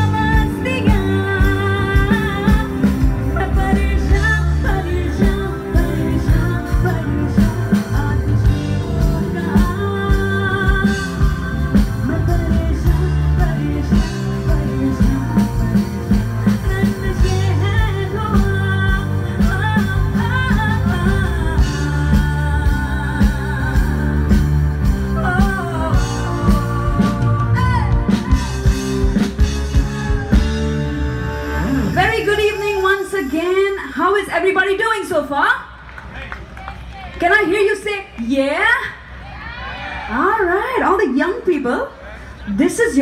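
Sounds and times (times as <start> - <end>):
woman singing into microphone: 0.0 - 28.6
live rock band playing: 0.0 - 34.9.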